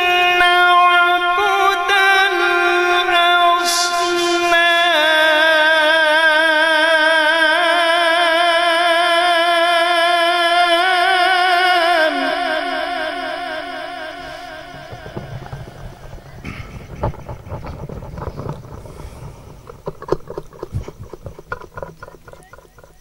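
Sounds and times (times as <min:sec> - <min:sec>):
man reciting melodically: 0:00.0 - 0:16.3.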